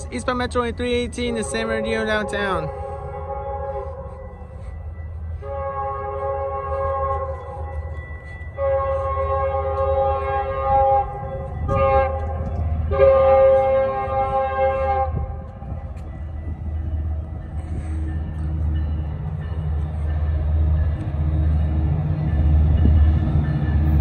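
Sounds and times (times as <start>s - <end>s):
train horn blasts: 0.0s - 15.9s
train rumble: 0.0s - 24.0s.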